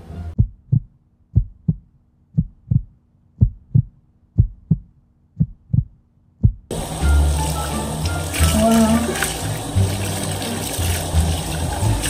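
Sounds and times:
heartbeat thumps: 0.3 - 6.7.

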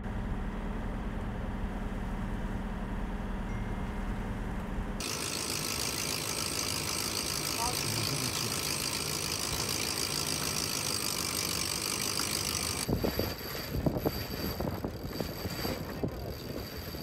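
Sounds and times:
boat engine running: 0.0 - 17.0
wind buffeting microphone: 12.8 - 17.0.

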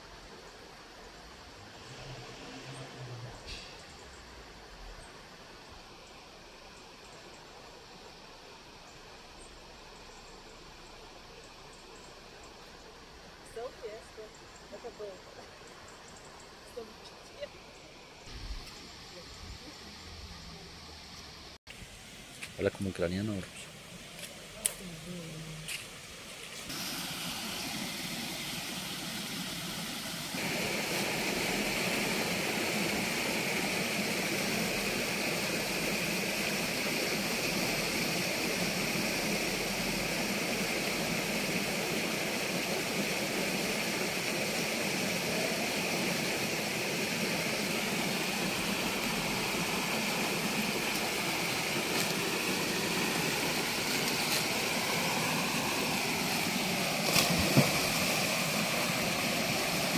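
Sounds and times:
river rushing over rapids: 26.6 - 59.9.

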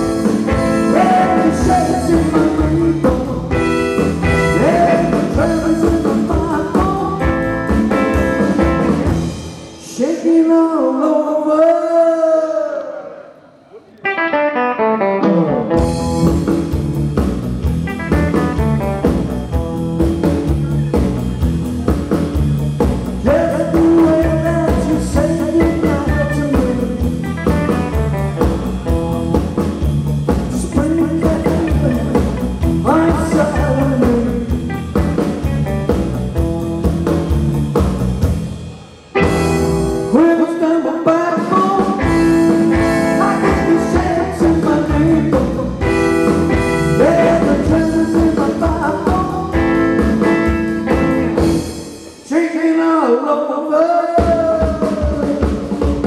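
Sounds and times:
man singing: 0.0 - 9.0, 9.8 - 13.4, 23.2 - 29.7, 30.4 - 35.7, 39.2 - 51.0, 52.2 - 56.0
rock band playing loud: 0.0 - 10.4, 14.0 - 52.8, 54.1 - 56.0.

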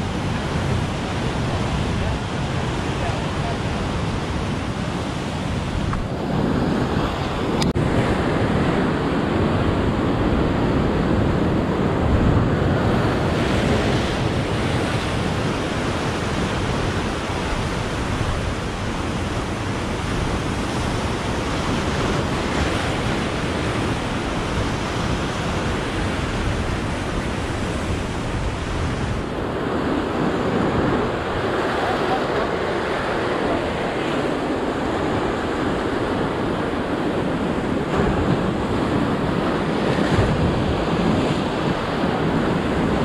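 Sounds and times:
surf breaking over rocks: 0.0 - 43.0.

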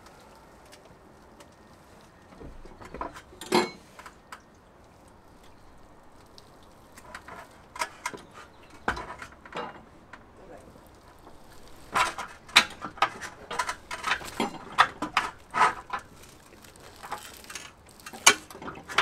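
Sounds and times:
metal clanks and knocks: 2.4 - 3.9, 7.0 - 19.0.

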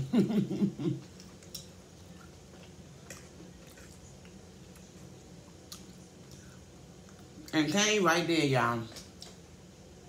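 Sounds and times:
low steady hum: 0.0 - 10.0
soft eating clicks: 1.0 - 7.7, 8.9 - 9.5.

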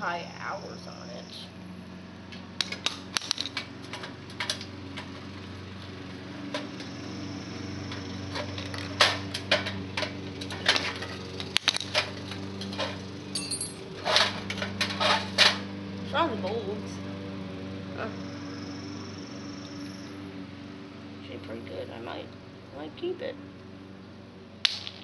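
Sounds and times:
steady low hum: 0.0 - 25.0
metal and glass clinks: 10.4 - 15.4.

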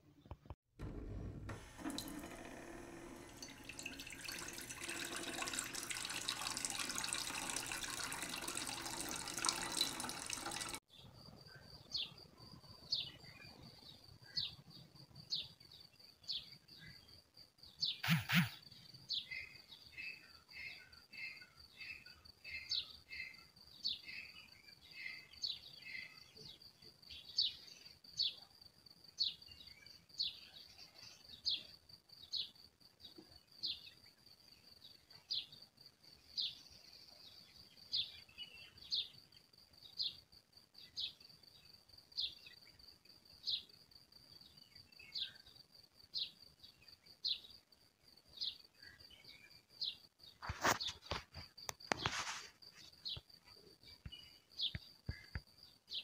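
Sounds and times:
tap water running into a basin: 0.8 - 10.8.

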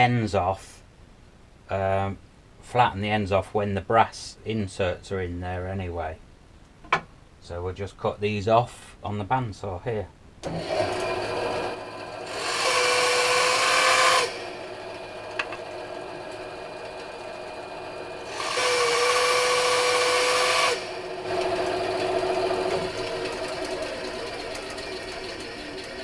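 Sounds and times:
bandsaw cutting wood: 10.4 - 26.0.

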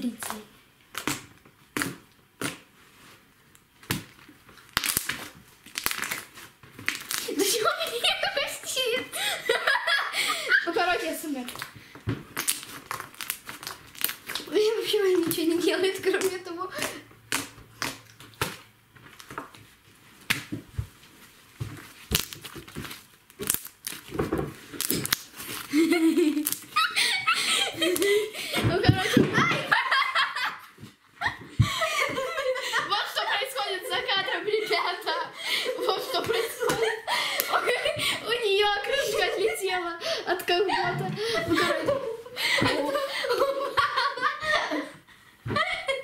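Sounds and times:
slime popping: 0.0 - 2.7, 3.8 - 7.4, 11.5 - 14.6, 16.0 - 19.6, 21.8 - 25.7, 26.3 - 26.8
slime clicking and crunching: 0.1 - 2.7, 3.8 - 7.4, 11.5 - 15.4, 16.1 - 19.6, 21.8 - 25.7, 26.4 - 26.8.

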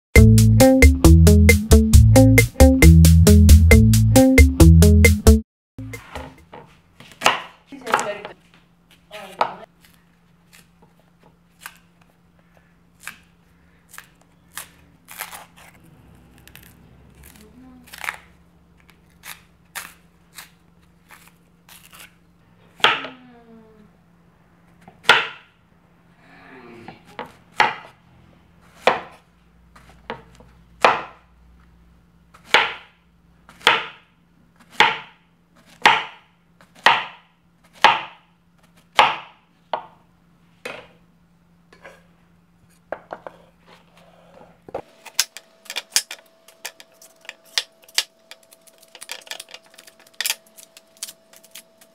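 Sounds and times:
cleaver chopping on wooden board: 7.2 - 8.1, 25.0 - 25.5, 27.6 - 27.9, 28.8 - 29.2, 30.1 - 31.2, 32.4 - 32.9, 33.5 - 34.0, 34.7 - 35.2, 35.8 - 36.2, 36.8 - 37.2, 37.8 - 38.2, 38.9 - 39.9.

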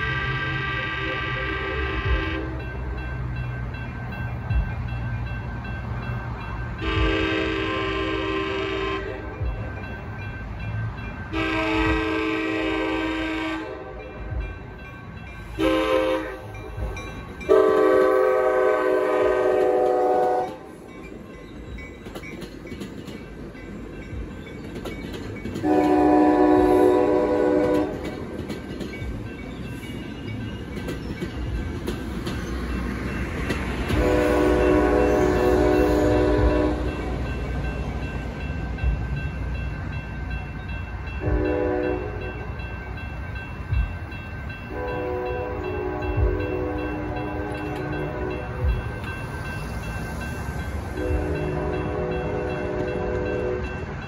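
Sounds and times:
train horn blasts: 0.0 - 2.9, 6.8 - 9.6, 11.3 - 14.4, 15.5 - 20.7, 25.6 - 28.3, 33.8 - 37.3, 41.2 - 42.4, 44.7 - 48.8, 50.9 - 53.8
train wheels rumbling and clacking: 0.0 - 54.0.

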